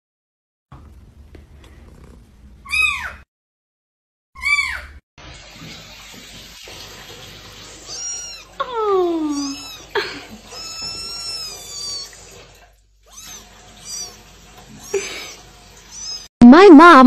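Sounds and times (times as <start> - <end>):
kitten meowing: 7.8 - 12.2, 13.0 - 14.2, 15.9 - 16.3.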